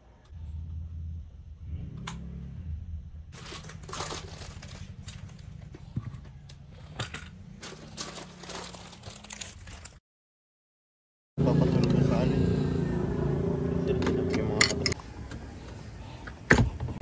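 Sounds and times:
plastic bag crinkling: 7.6s - 10.0s.

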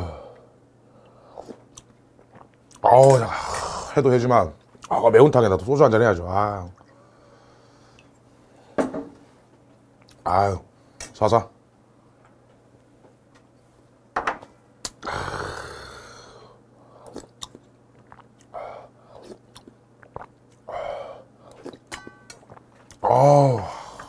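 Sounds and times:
chewing: 1.4s - 2.9s, 17.0s - 20.7s, 21.5s - 23.0s
slurping: 17.0s - 20.7s.

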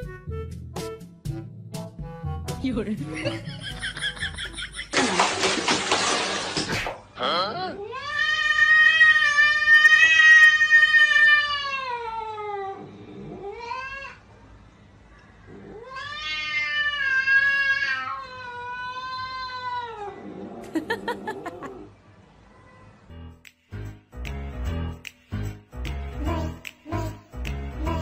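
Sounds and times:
cat yowling: 7.7s - 14.2s, 15.6s - 20.3s.

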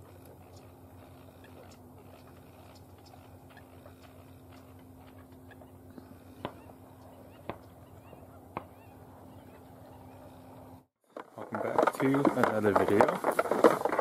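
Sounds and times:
outdoor background hum: 0.0s - 14.0s
faint waterfowl calls: 0.1s - 10.8s.

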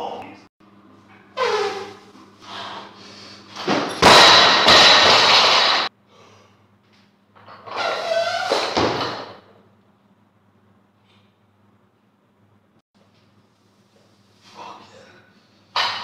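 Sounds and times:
barbell crashing onto platform: 3.6s - 5.9s.

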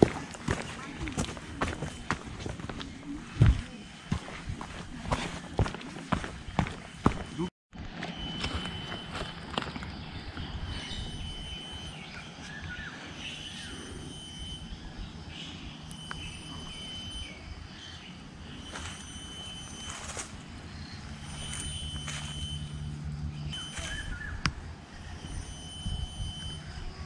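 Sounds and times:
footsteps on dry leaves: 0.0s - 9.8s, 19.8s - 20.4s
birds calling and whistling: 0.5s - 7.5s, 8.1s - 27.0s.

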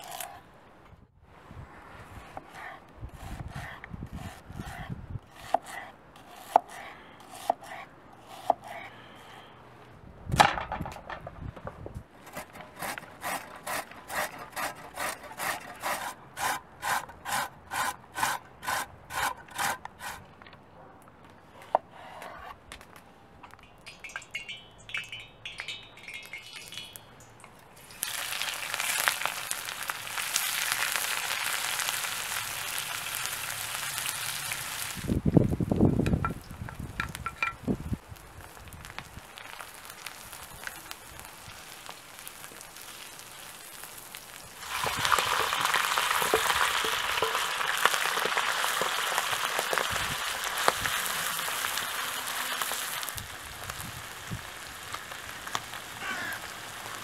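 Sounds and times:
knife slicing onion on board: 2.3s - 8.9s
carrot grating on metal grater: 12.3s - 20.2s
onions sizzling in wok: 27.8s - 35.3s, 37.7s - 57.0s.

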